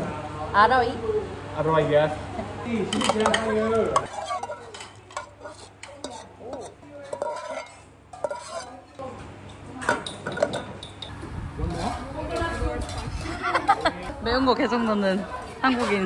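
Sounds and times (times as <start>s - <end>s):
utensil clinking against pot: 2.9s - 8.8s, 9.4s - 11.1s
utensil stirring in pot: 2.9s - 9.1s.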